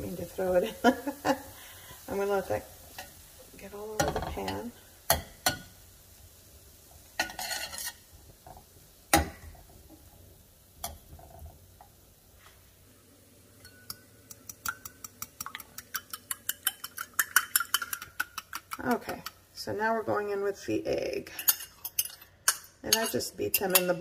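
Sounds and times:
metal spatula scraping frying pan: 7.2s - 8.1s, 21.3s - 24.0s
utensil clinking against ceramic bowl: 13.6s - 19.4s, 21.4s - 24.0s.

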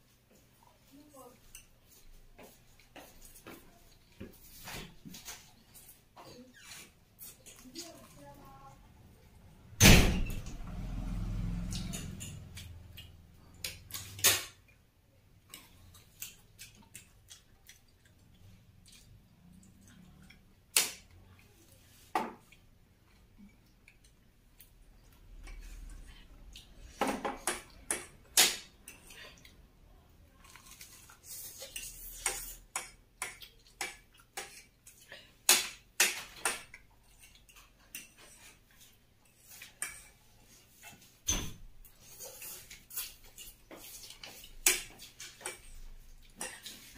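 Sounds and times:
loud thump: 9.8s - 10.4s
person eating: 15.4s - 27.0s, 28.7s - 36.0s.

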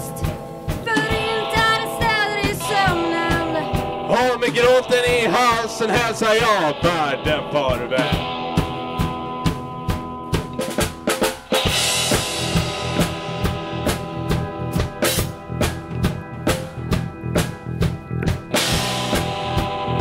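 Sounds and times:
drum kit beat: 0.0s - 20.0s
rock band playing: 0.0s - 20.0s.

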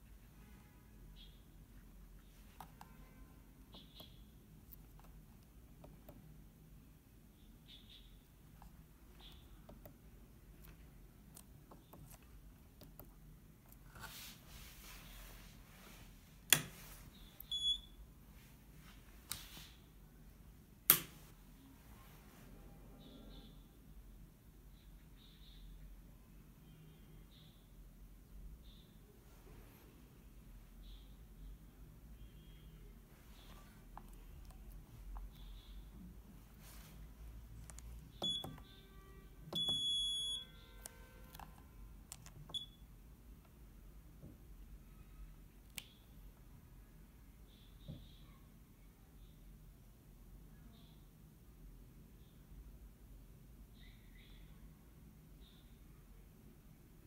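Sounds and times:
keypad buzzer beeping: 17.5s - 17.9s, 38.2s - 38.7s, 39.5s - 41.0s.

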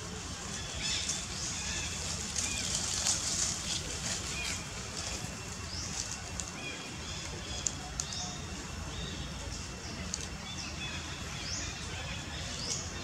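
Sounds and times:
faint sharp clicks: 7.6s - 8.2s.

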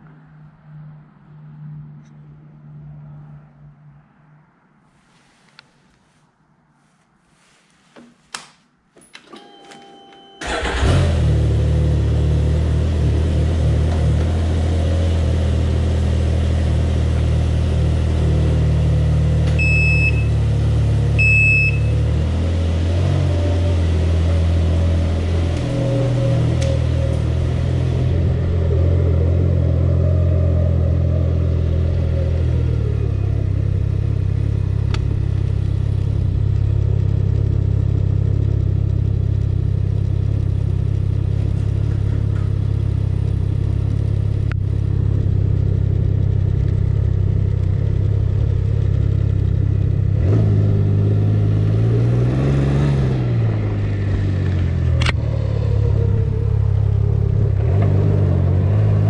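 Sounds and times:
short high beeps: 9.4s - 10.5s
engine starting and idling: 10.4s - 12.4s.

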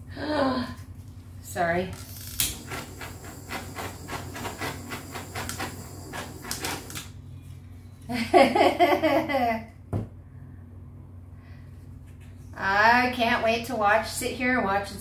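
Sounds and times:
butane torch hissing: 2.0s - 7.2s.

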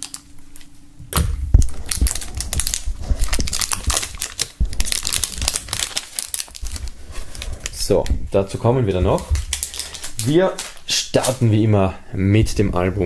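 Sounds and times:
plastic film crinkling: 0.0s - 0.7s, 1.5s - 11.6s.

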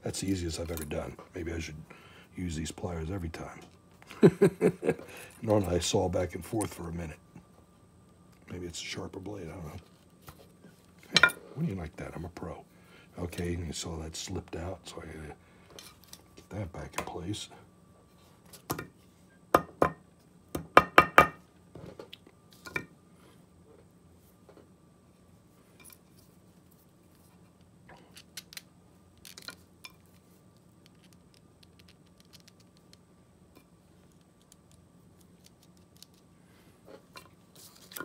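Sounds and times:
small plastic parts clicking: 28.0s - 30.0s, 30.8s - 33.0s.

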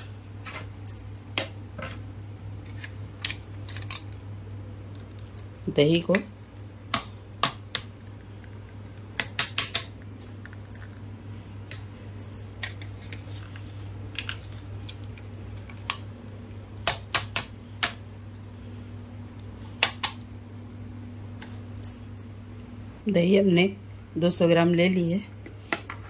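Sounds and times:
steady low hum: 0.0s - 26.0s
plastic cups clicking and scraping: 12.6s - 16.1s.

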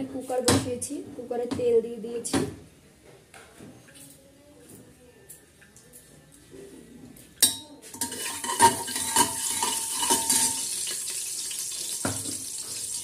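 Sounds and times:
spatula clinking and scraping: 7.4s - 11.3s
hot oil hissing: 8.0s - 13.0s.

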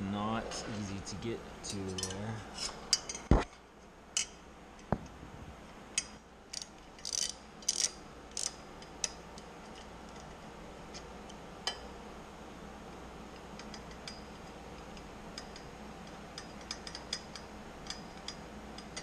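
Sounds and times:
socket wrench clicking on metal: 6.0s - 9.2s, 16.4s - 19.0s.

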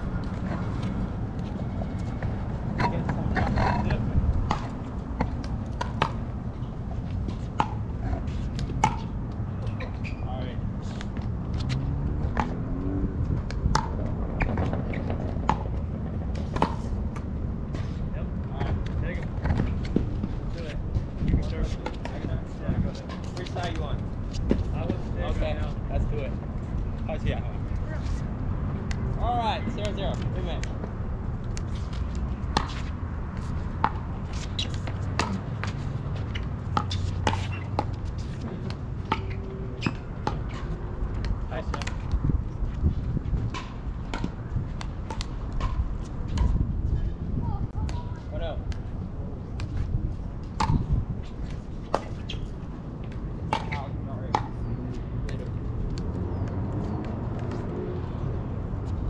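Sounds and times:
steady low rumble: 0.0s - 9.8s.

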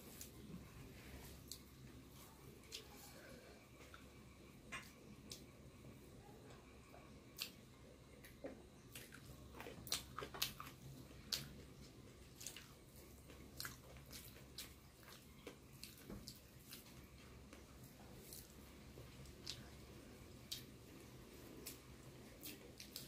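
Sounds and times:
rice squishing by hand: 0.0s - 23.0s
person chewing: 7.3s - 19.8s, 20.4s - 23.0s.

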